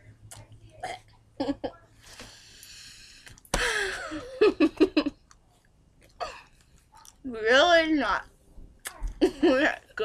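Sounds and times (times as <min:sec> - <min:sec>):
girl laughing: 0:01.4 - 0:01.8, 0:03.6 - 0:05.2, 0:09.2 - 0:09.8.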